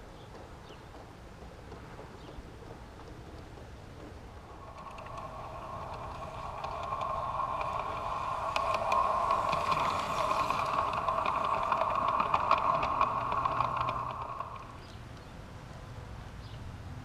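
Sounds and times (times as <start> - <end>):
wheels clicking over rail joints: 0.0 - 15.5
model train motor whine: 4.4 - 15.1.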